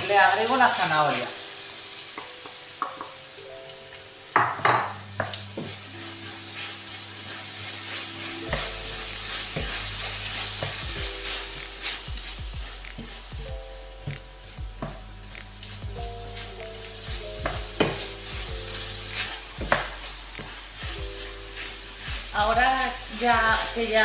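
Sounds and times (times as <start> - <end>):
meat sizzling in a frying pan: 0.0 - 24.0
wooden spoon stirring: 5.2 - 24.0.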